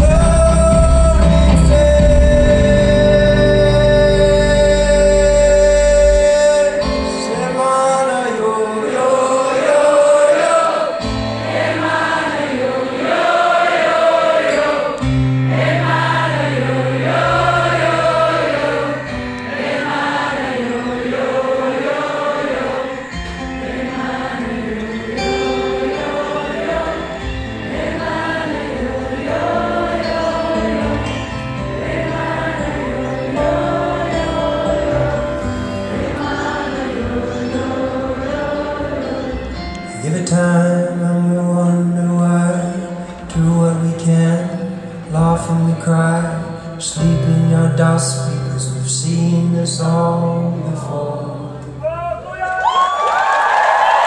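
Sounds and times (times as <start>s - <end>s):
low bass notes: 0.0s - 6.9s
acoustic guitar: 0.0s - 52.2s
voices singing wordless melody: 0.0s - 52.2s.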